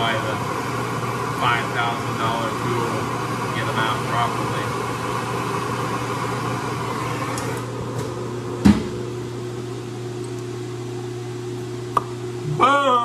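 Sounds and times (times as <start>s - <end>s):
gas torch hissing: 0.0s - 9.1s
steady mechanical hum: 0.0s - 13.0s.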